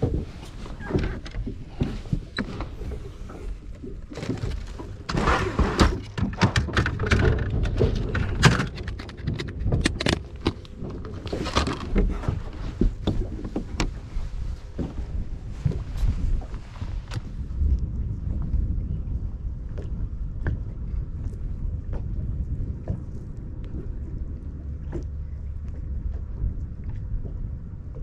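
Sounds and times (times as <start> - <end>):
low rumble: 0.0 - 28.0
handling knocks and clicks: 4.0 - 14.0.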